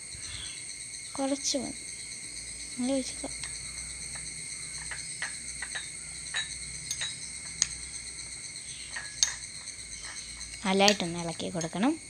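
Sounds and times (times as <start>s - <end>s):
spoon clinking against glass bowl: 3.4s - 8.0s, 8.8s - 11.9s.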